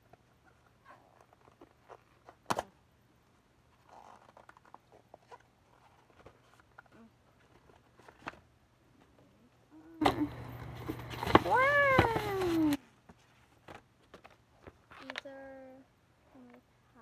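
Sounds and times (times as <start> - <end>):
light paper rustling: 3.7 - 9.3, 10.1 - 15.4.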